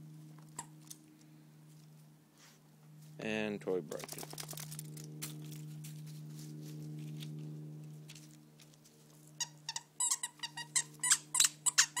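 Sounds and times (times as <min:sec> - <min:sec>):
low steady hum: 0:00.0 - 0:12.0
squeaky dog toy squeaks: 0:09.4 - 0:12.0.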